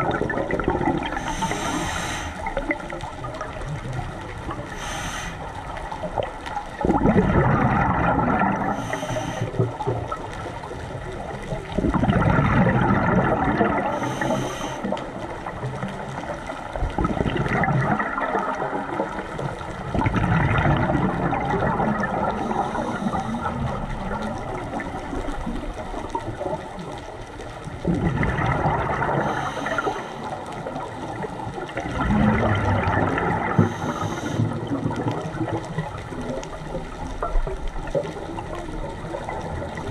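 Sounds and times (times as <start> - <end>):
gurgling exhaled bubbles: 0.0 - 39.9
regulator hissing inhalations: 1.1 - 2.6, 4.7 - 5.6, 8.7 - 9.6, 13.9 - 14.9, 22.4 - 23.6, 29.2 - 30.4, 33.6 - 34.5.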